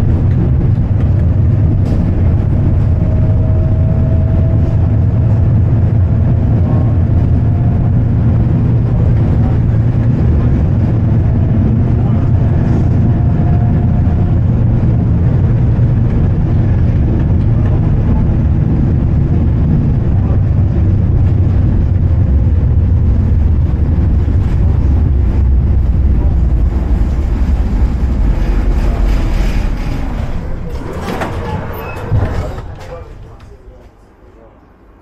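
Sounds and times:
tram rumbling on rails: 0.0s - 35.0s.

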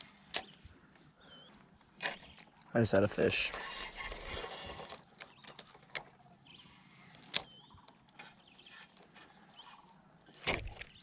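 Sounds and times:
clicks from handling reel and rod: 0.0s - 0.6s, 7.0s - 9.3s.

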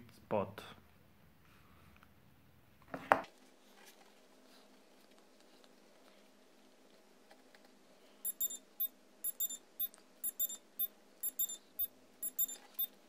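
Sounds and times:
high electronic beeping: 8.3s - 12.9s.

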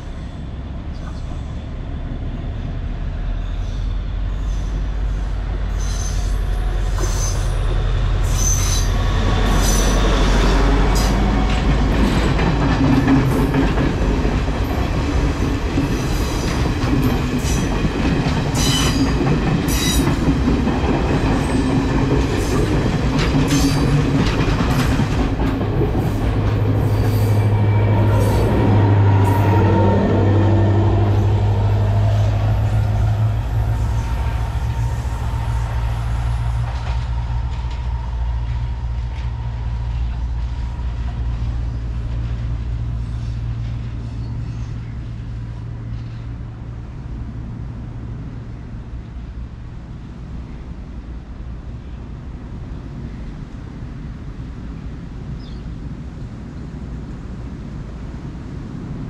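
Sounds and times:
train wheels clattering and squealing: 0.0s - 1.8s, 3.4s - 46.4s
diesel train engine drone: 0.0s - 59.0s.

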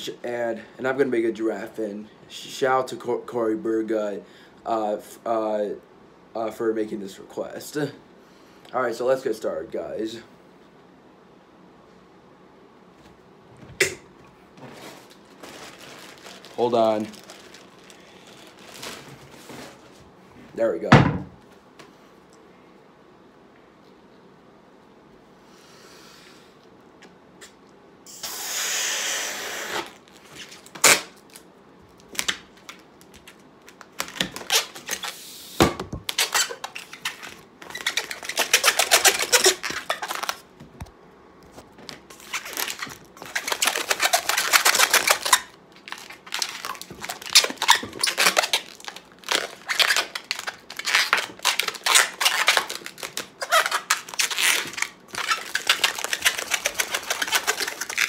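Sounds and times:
air rushing into balloon: 28.1s - 29.9s
rubbery balloon squeaks: 28.8s - 31.0s, 34.0s - 35.2s, 36.0s - 40.5s, 42.1s - 58.0s
hands rubbing latex: 49.4s - 58.0s.

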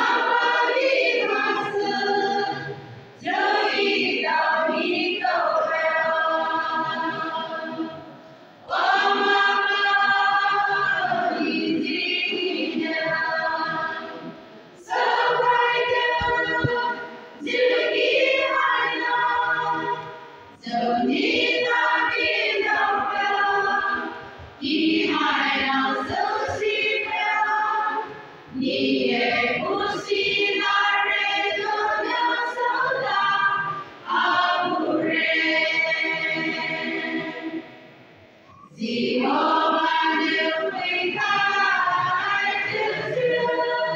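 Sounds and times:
women's choir singing: 0.0s - 43.9s.

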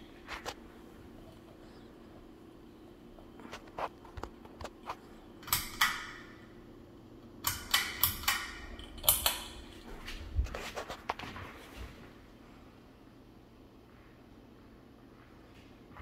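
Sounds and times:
steady low hum: 0.0s - 16.0s
pull-chain switch clicks: 7.4s - 9.6s.

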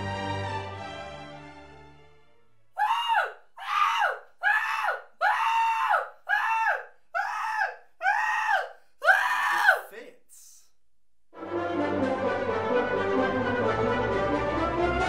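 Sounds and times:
orchestral music: 0.0s - 2.7s, 11.4s - 15.0s
young man screaming: 2.8s - 10.6s.

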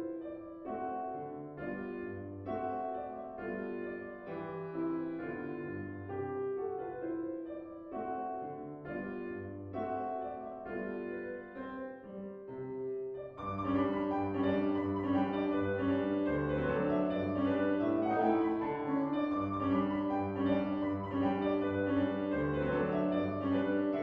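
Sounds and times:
solo piano music: 0.0s - 24.0s.

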